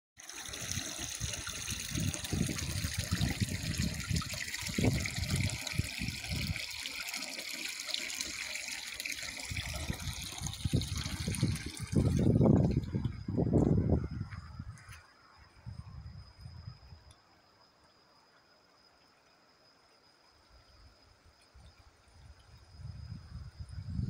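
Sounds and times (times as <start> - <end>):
water pouring and splashing: 0.2 - 14.1.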